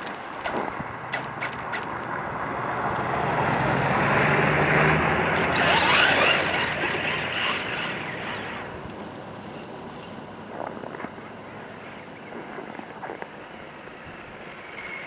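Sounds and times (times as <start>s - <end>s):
pickup truck driving past: 0.9s - 10.4s
rc truck motor whining: 3.7s - 12.1s.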